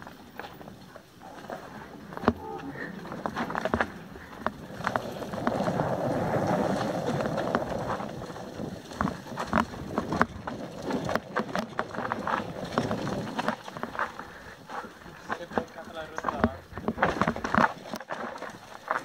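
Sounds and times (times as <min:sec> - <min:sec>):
bike clacking and rattling: 0:00.0 - 0:19.0
tyres rushing through leaves: 0:01.6 - 0:16.0.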